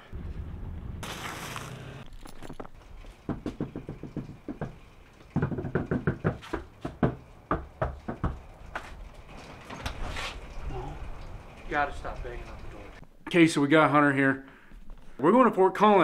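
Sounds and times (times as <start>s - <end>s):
rapid banging on door: 3.2s - 8.9s.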